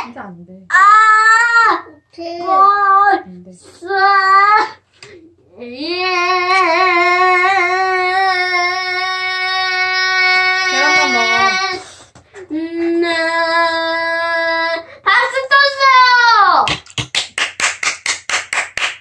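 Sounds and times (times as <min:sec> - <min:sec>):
boy singing long notes: 0:05.6 - 0:11.9.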